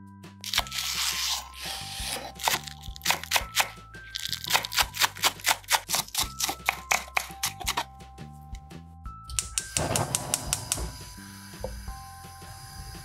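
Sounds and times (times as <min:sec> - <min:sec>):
background music: 0:00.0 - 0:13.0
knife chopping on wooden board: 0:02.0 - 0:07.9.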